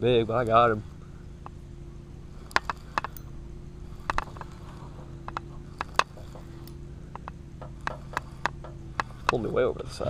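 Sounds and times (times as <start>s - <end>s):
faint steady hum: 0.0s - 10.0s
spinning reel clicking: 2.4s - 3.3s.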